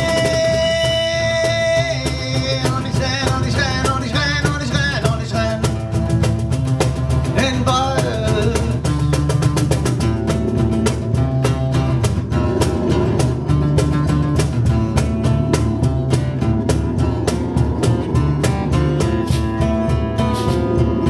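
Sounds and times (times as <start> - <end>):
man singing: 0.0 - 6.0, 7.2 - 9.2
acoustic guitar: 0.0 - 21.0
hand percussion: 0.0 - 21.0.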